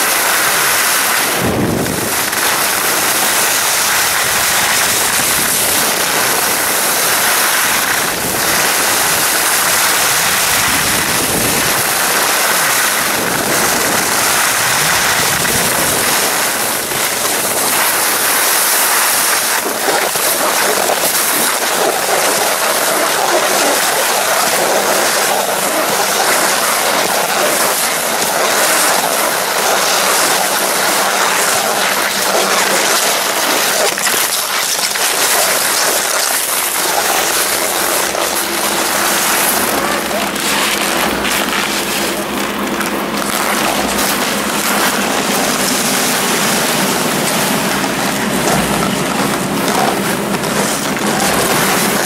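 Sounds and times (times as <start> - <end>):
wind on microphone: 0.0 - 22.6
skis scraping over snow: 0.0 - 52.0
steady low hum: 23.6 - 52.0.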